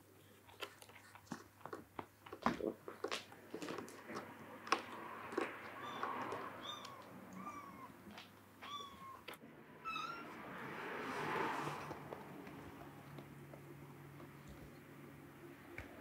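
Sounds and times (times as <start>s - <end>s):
kitten mewing: 5.6s - 10.4s.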